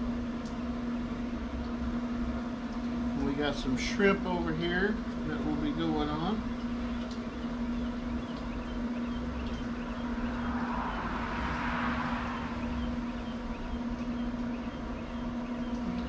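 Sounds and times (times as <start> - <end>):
pellet smoker humming: 0.0 - 16.0
rush of noise: 10.2 - 12.8.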